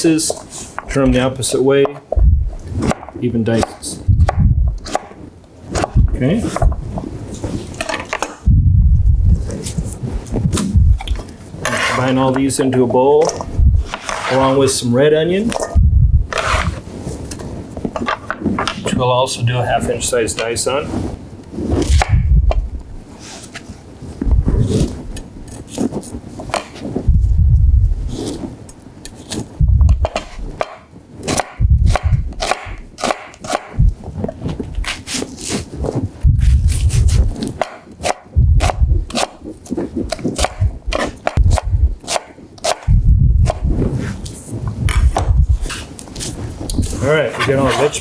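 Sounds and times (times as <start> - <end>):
dull thumps and clicks: 1.8 - 3.2, 4.1 - 5.1, 5.8 - 11.4, 21.9 - 22.9, 28.7 - 30.8, 42.6 - 47.0
knife cutting onion: 2.8 - 6.7, 11.6 - 12.3, 16.3 - 16.8, 21.8 - 22.6, 29.1 - 33.8, 34.8 - 35.7, 36.4 - 44.2, 44.9 - 46.3.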